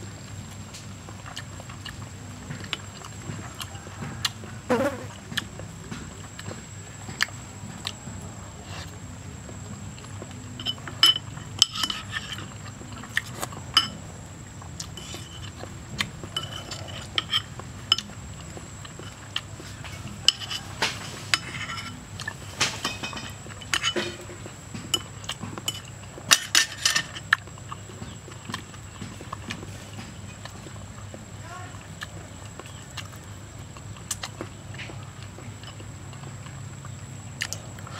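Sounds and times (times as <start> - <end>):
cutlery clinking on ceramic bowl: 16.4 - 18.2, 22.6 - 27.2.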